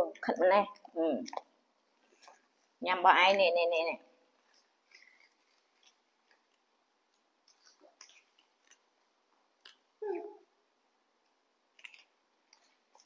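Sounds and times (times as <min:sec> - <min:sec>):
monkeys chewing crispy snacks: 0:04.2 - 0:13.0.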